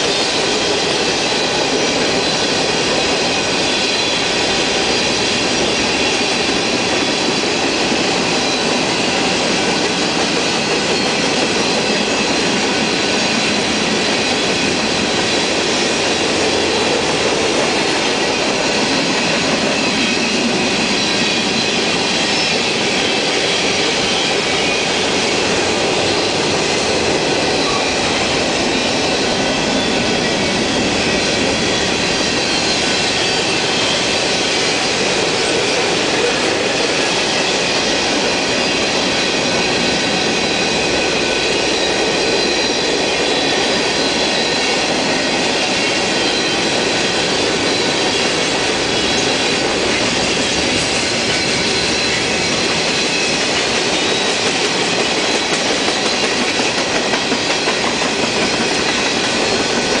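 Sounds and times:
train cars rattling on rails: 0.0 - 60.0
wheel squeal: 17.7 - 60.0.

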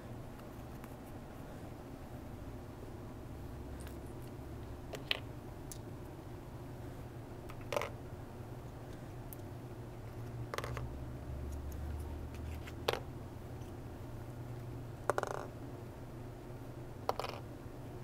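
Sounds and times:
steady low hum: 0.0 - 18.0
plastic pieces tapping: 7.5 - 7.9, 10.5 - 10.9, 15.1 - 15.5, 17.1 - 17.4.

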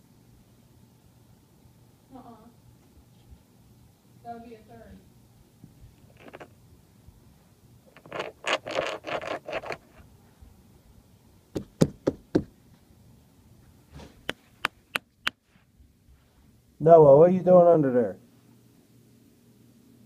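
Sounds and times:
scratchy rustling: 5.9 - 6.6, 7.9 - 10.1
sharp knocks on hard surface: 11.6 - 12.6.

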